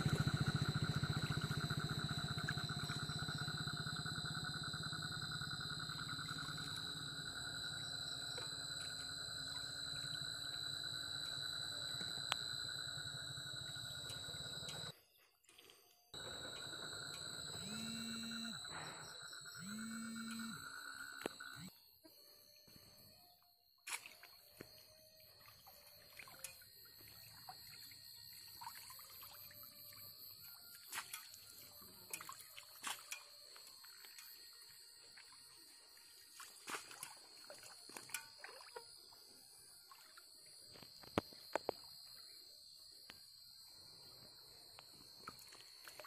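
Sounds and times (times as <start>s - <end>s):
steady high-pitched tone: 16.2s - 23.4s
wading through shallow water: 31.0s - 40.6s.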